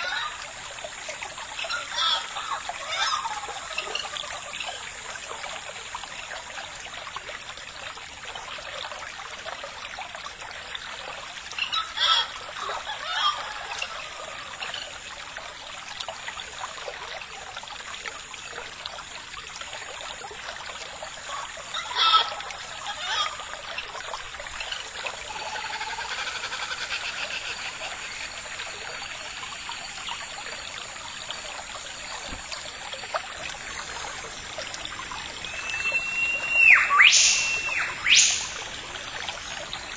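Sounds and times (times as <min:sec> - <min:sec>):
trickle of running water: 0:00.0 - 0:39.9
sharp pitched calls: 0:35.4 - 0:38.7.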